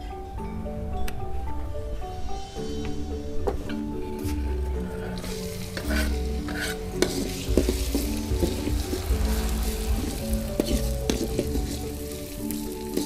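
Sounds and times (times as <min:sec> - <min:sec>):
metal spatula scraping pan: 0:05.1 - 0:13.0
food sizzling in oil: 0:05.2 - 0:13.0.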